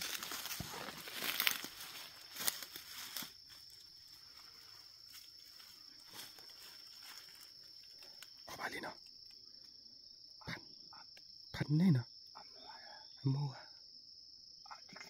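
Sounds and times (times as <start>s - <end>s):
footsteps crunching through leaves: 0.0s - 8.2s
crickets trilling: 0.0s - 15.0s.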